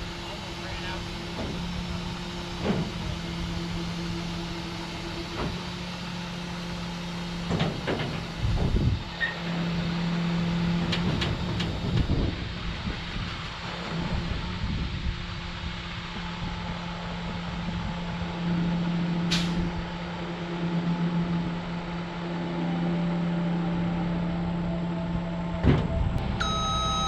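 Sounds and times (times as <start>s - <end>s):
truck engine and hydraulics humming: 0.0s - 27.0s
metal clanks and knocks: 7.4s - 8.8s.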